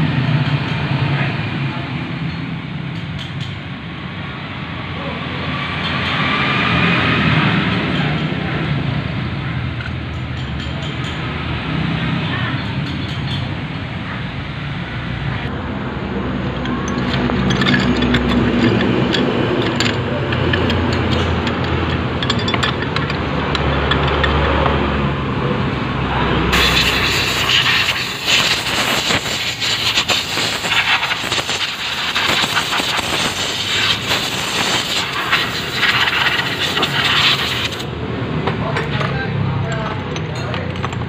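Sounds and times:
vehicle engine humming: 0:00.0 - 0:41.0
metal parts scrubbed in a tray: 0:26.6 - 0:37.8.

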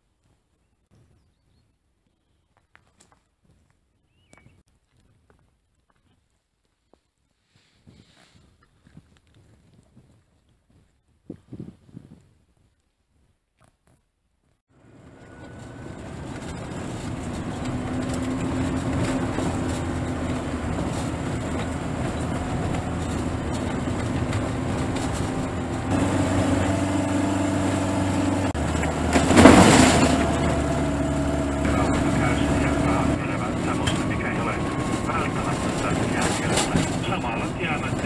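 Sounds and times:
car engine running: 0:14.7 - 0:38.0
tyre noise on gravel: 0:28.5 - 0:38.0.

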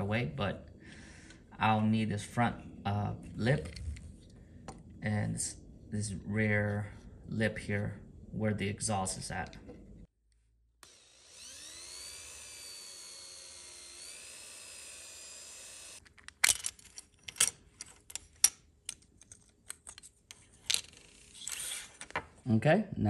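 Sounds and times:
power drill whining: 0:10.8 - 0:16.0.

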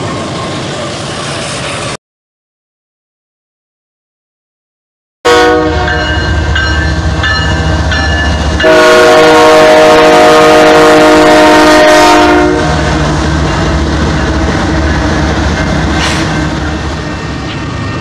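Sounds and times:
locomotive air horn blasts: 0:05.3 - 0:06.3, 0:08.6 - 0:13.0
diesel locomotive rumble: 0:05.3 - 0:18.0
locomotive bell ringing: 0:05.7 - 0:09.3, 0:13.4 - 0:14.6.

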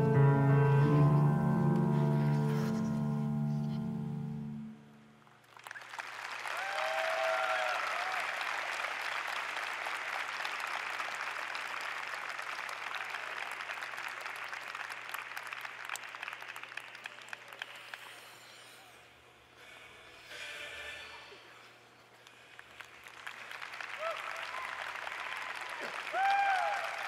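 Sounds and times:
piano music: 0:00.0 - 0:05.0
crowd applause: 0:05.4 - 0:18.2, 0:22.5 - 0:27.0.

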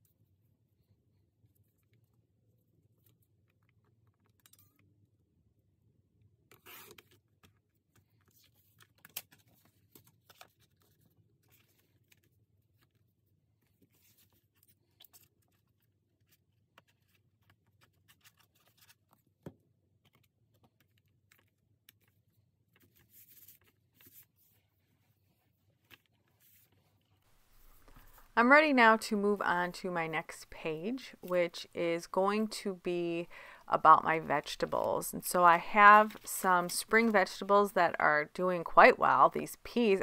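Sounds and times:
paper rustling: 0:13.6 - 0:19.3, 0:20.0 - 0:28.3.

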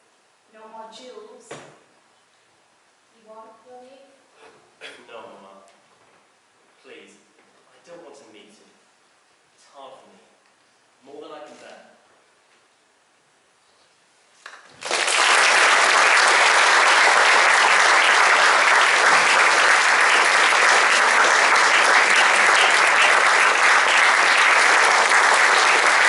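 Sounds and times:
audience applauding: 0:14.5 - 0:26.0.

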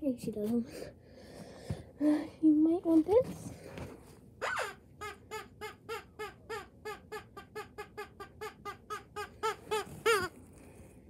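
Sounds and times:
rubber chicken toy squeaking: 0:04.4 - 0:10.4.

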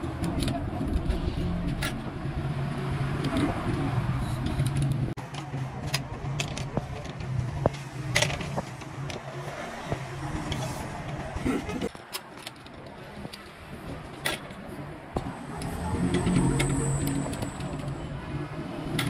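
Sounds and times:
low engine-like hum: 0:14.7 - 0:19.0.

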